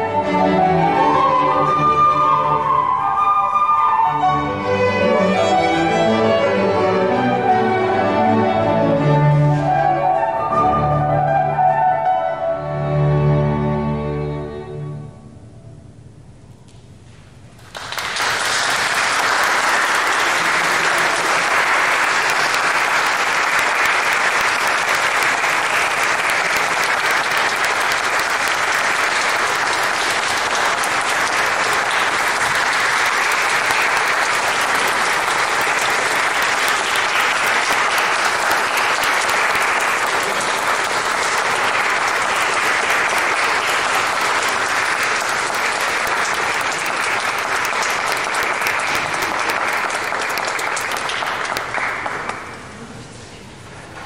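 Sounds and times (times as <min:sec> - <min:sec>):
audience applauding in a church: 0:17.6 - 0:52.9.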